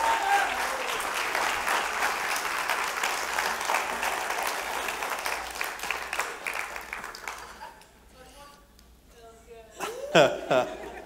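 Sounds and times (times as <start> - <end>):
congregation applauding: 0.0 - 7.8.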